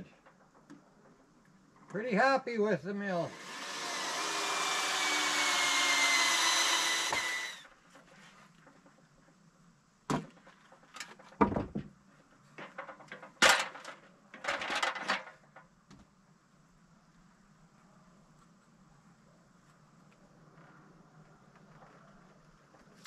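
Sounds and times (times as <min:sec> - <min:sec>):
cordless drill running: 0:03.2 - 0:07.6.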